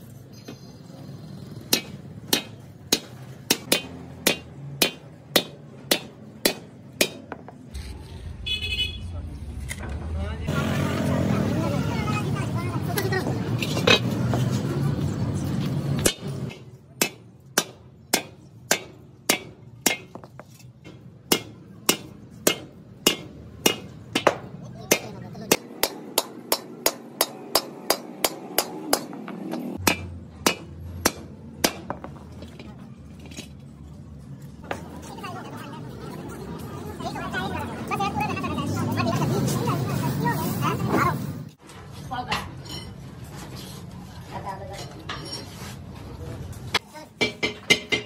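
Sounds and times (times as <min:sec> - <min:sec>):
hammer striking steel: 0:01.6 - 0:07.6, 0:16.0 - 0:32.2, 0:47.2 - 0:48.0.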